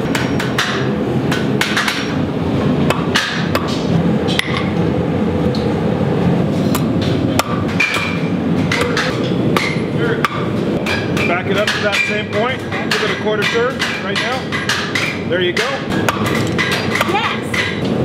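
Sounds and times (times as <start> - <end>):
gas forge burners roaring: 0.0 - 18.0.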